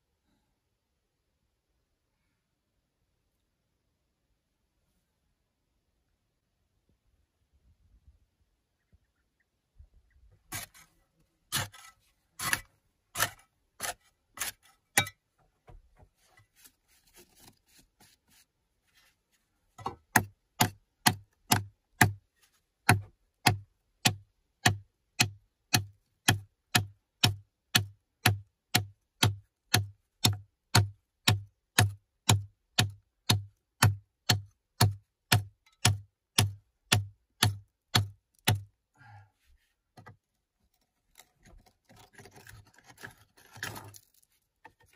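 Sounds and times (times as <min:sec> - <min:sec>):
scraping and crumbling soil: 0:10.4 - 0:15.3, 0:16.1 - 0:20.2, 0:40.0 - 0:44.9
bladed tool chopping earth: 0:11.5 - 0:15.2, 0:19.8 - 0:22.2, 0:22.8 - 0:38.7.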